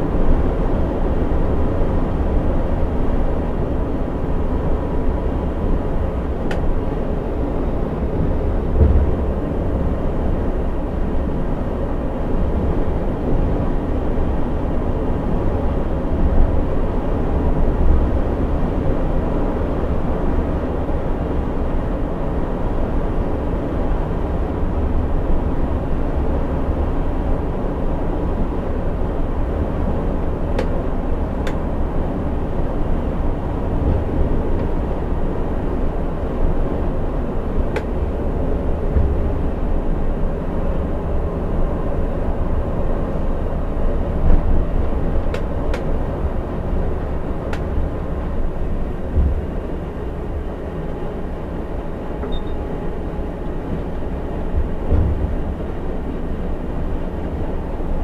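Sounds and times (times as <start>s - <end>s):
bus engine and road rumble: 0.0s - 58.0s.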